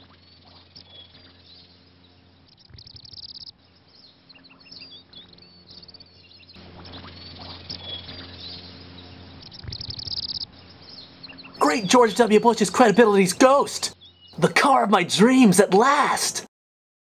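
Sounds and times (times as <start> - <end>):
bird rapid trills: 0.0 - 11.6
birds chirping: 0.0 - 16.5.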